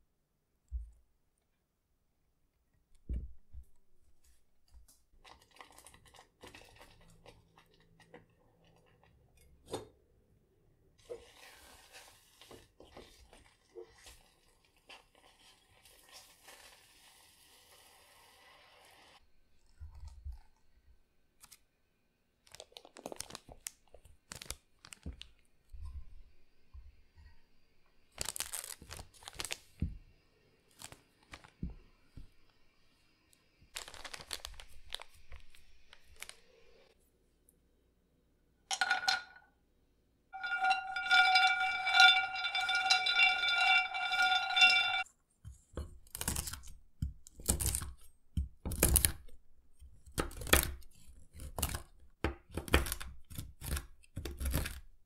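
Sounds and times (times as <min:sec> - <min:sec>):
plastic bag crinkling: 0:22.5 - 0:23.7, 0:28.2 - 0:29.6, 0:33.7 - 0:36.4
spatula scraping saucepan: 0:40.4 - 0:45.0.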